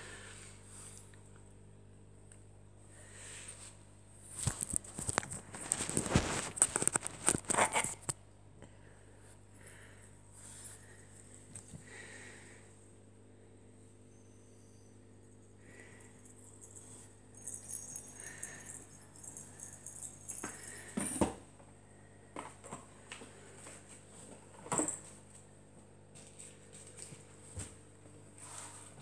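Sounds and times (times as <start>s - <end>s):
toys and paper rustling: 4.3s - 8.2s.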